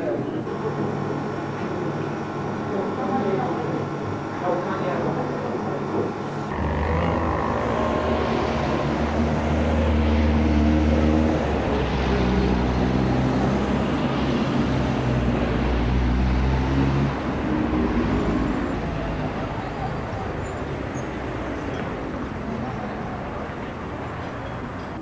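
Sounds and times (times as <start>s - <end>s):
motor humming: 6.5s - 11.8s.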